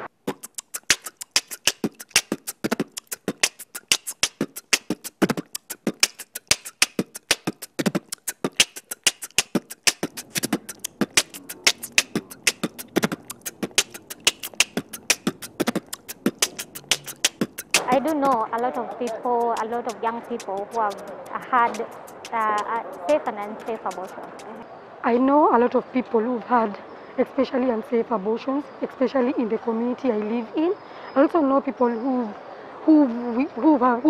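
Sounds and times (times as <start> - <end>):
fast percussive beat music: 0.2 - 24.6.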